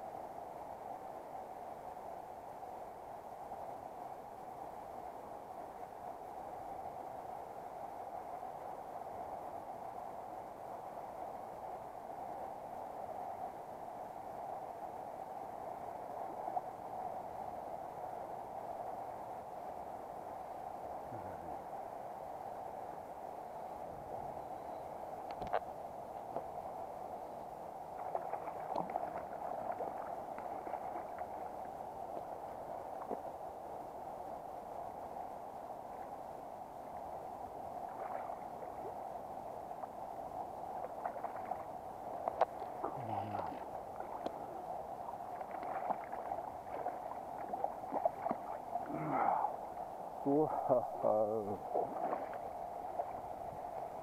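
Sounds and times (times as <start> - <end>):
river flowing over stones: 25.0 - 54.0
light clicks and splashes: 25.2 - 26.5, 28.0 - 32.3, 40.8 - 44.4, 45.3 - 48.6, 51.8 - 53.2.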